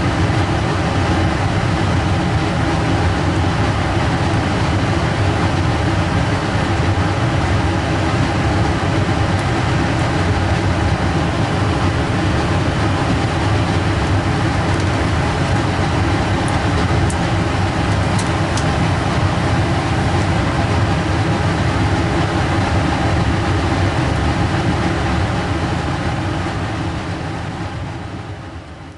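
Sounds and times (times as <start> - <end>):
blower fan airflow rush: 0.0 - 28.9.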